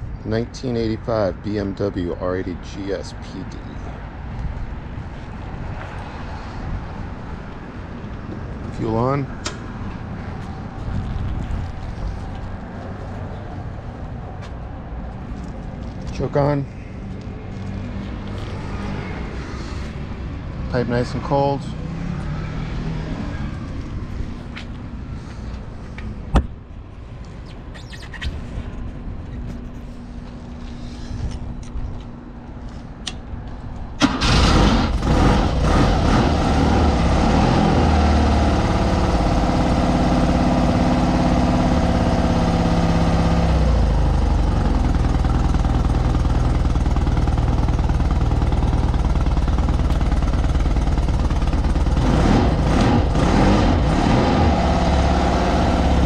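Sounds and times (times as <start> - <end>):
motorcycle engine starting and idling: 34.0 - 35.7, 38.6 - 53.2.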